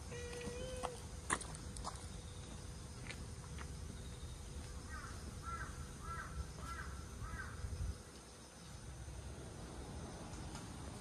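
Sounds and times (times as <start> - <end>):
crow cawing: 4.9 - 7.6.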